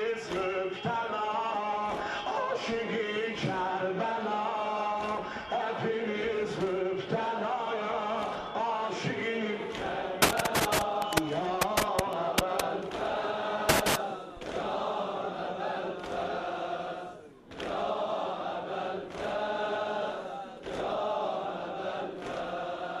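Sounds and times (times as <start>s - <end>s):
crowd of men chanting: 0.0s - 23.0s
sharp slaps: 10.2s - 13.1s, 13.7s - 14.6s.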